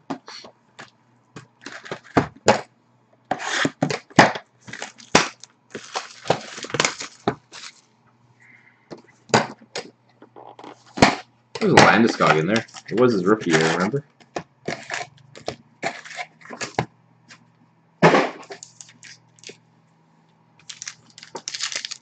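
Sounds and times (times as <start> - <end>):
faint low hum: 4.4 - 22.0
plastic wrapping crinkling and tearing: 4.6 - 7.8, 12.1 - 13.9, 18.5 - 19.6, 20.6 - 22.0.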